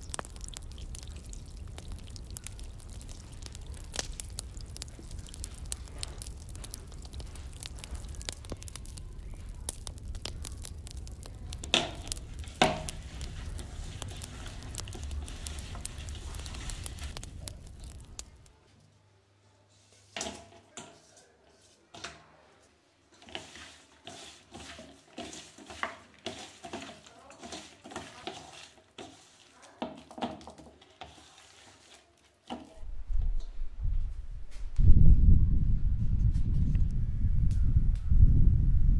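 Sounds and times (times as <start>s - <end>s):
hand squishing fish in marinade: 0.0s - 18.5s.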